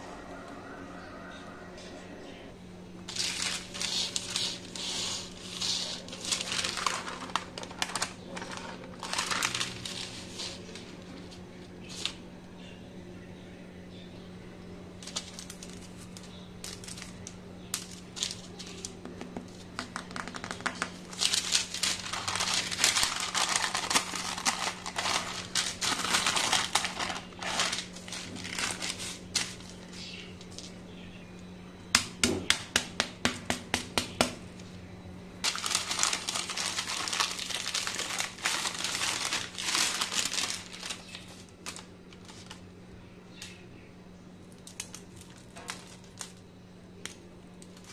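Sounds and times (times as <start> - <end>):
parchment paper crinkling: 3.1 - 12.2, 15.0 - 30.8, 35.4 - 42.6, 44.4 - 47.9.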